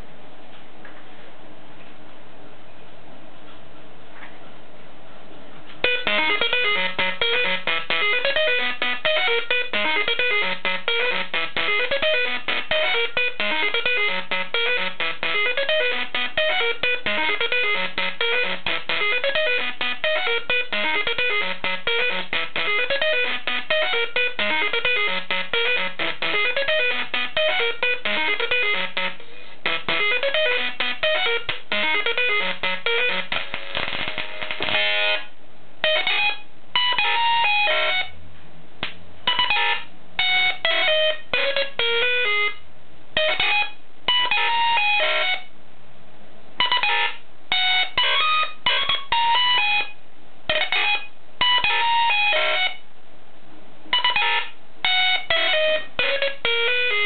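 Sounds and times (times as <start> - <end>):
plasma speaker melody: 5.8 - 38.1, 39.3 - 42.6, 43.2 - 45.5, 46.6 - 52.8, 53.9 - 57.0.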